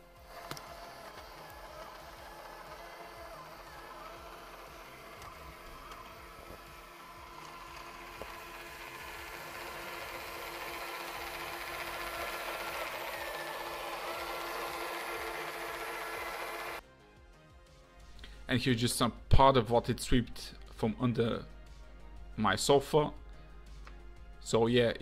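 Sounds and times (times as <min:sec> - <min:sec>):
robot vacuum motor whir: 0:00.0 - 0:16.8.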